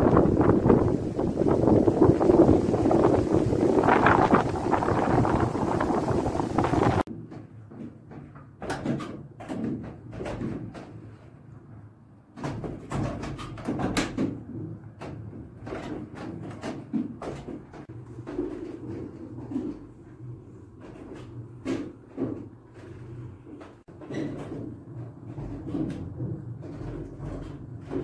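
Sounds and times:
wind buffeting microphone: 0.0 - 7.1
wooden cogwheels knocking and clattering: 0.0 - 11.0, 12.4 - 28.0.

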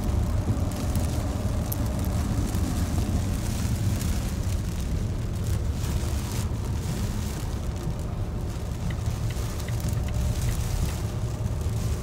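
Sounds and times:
car road noise rumble: 0.0 - 12.0
rain on car body and windows: 0.0 - 12.0.

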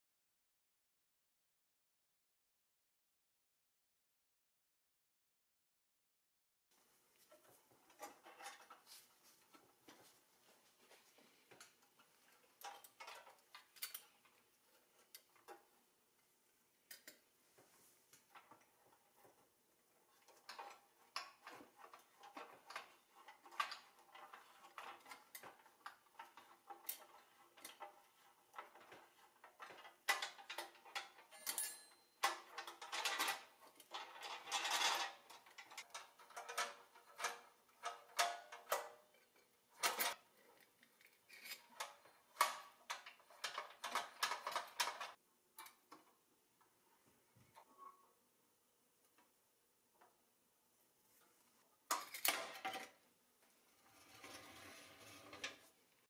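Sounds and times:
toy crane metallic clicks and rattles: 12.6 - 14.1, 20.3 - 45.8, 51.9 - 53.0.

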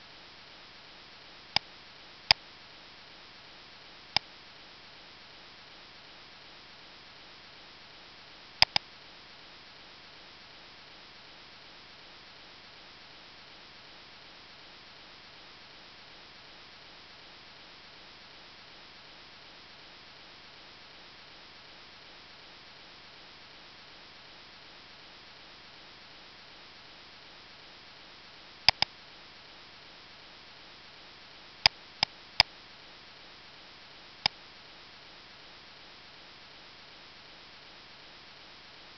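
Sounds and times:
microphone hiss: 0.0 - 38.9
computer mouse clicks: 8.6 - 8.8, 28.7 - 28.9.

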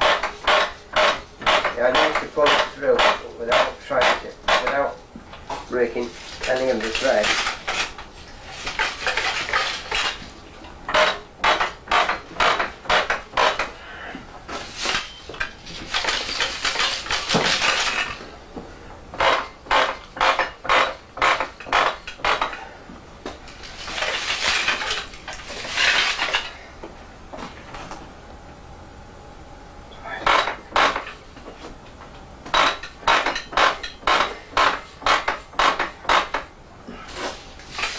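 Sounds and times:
loom metal parts clinking: 0.0 - 4.9, 6.4 - 7.9, 8.7 - 10.2, 14.8 - 18.2, 23.6 - 26.6, 32.5 - 36.5.

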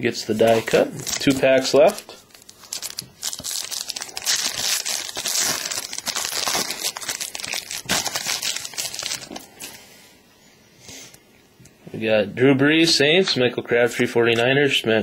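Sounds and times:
foil wrapper crinkling: 0.4 - 9.8.

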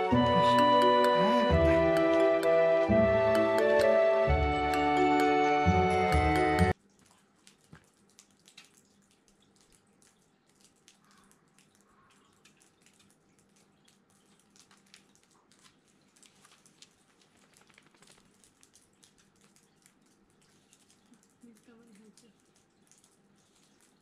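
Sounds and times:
water dripping onto wet pavement: 0.0 - 24.0.

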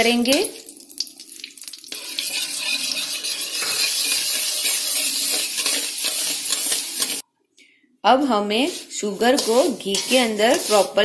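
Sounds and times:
sugar hissing in hot ghee: 1.7 - 7.2, 8.4 - 11.0.

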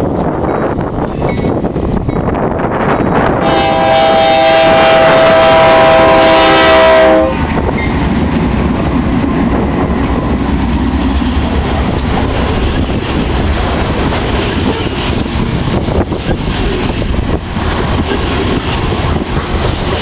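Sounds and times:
train rumbling: 0.0 - 20.0
wheels clacking on rail: 0.0 - 20.0
locomotive air horn: 3.4 - 7.4.

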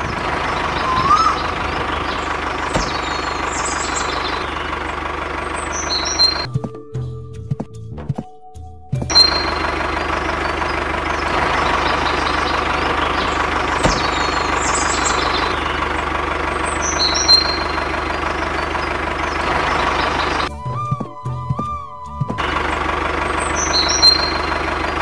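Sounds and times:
engine idling: 0.0 - 7.6, 8.9 - 25.0
thump: 13.8 - 14.1.

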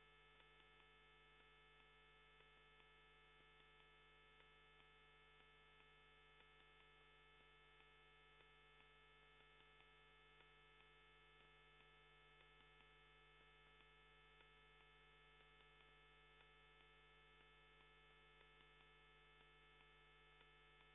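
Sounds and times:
faint ticks: 0.0 - 20.9.

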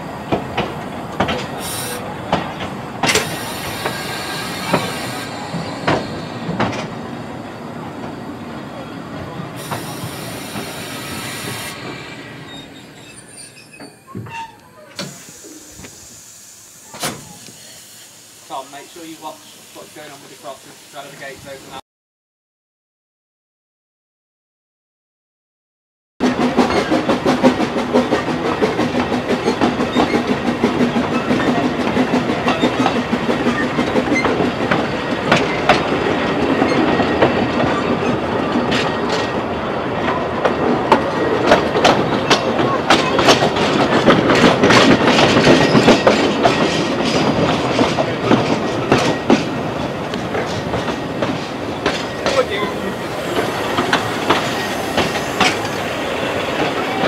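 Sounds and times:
steam train running: 0.0 - 21.8, 26.2 - 57.0
wheels clicking over rail joints: 26.3 - 57.0.

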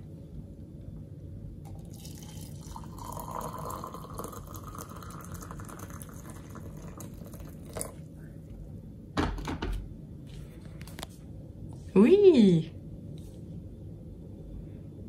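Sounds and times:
hot water pouring into mug: 1.7 - 8.1.

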